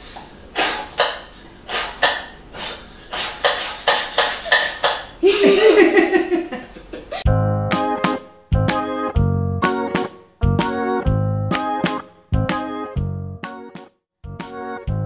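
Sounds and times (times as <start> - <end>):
person laughing and giggling: 4.1 - 7.3
piano music: 7.3 - 15.0.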